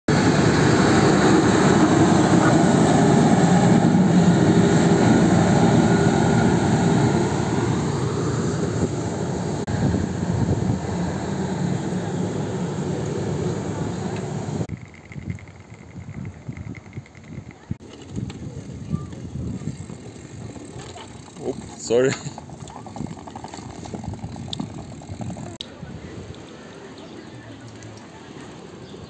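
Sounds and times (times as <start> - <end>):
train rumbling on rails: 0.1 - 14.7.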